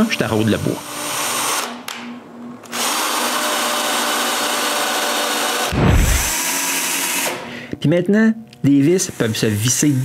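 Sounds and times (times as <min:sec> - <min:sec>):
drill press running: 0:02.6 - 0:07.4
loud low thump: 0:05.7 - 0:06.3.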